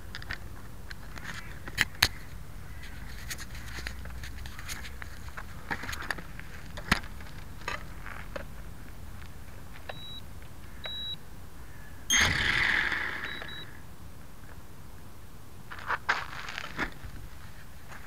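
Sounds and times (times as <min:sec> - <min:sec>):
high electronic beeps: 0:09.9 - 0:10.2, 0:10.9 - 0:11.2, 0:12.1 - 0:13.7.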